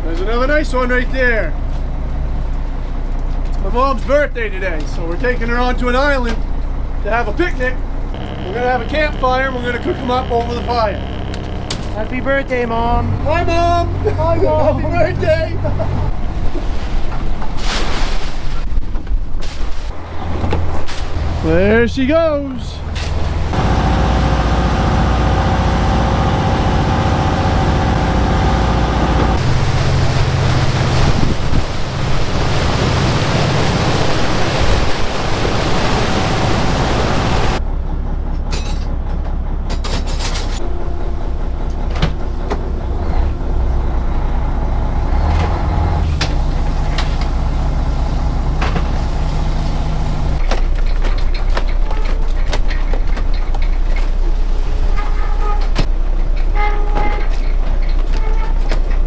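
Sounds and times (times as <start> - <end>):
boat diesel engine running: 0.2 - 17.6, 22.4 - 59.0
wind and water rushing: 14.4 - 21.7, 22.8 - 37.6.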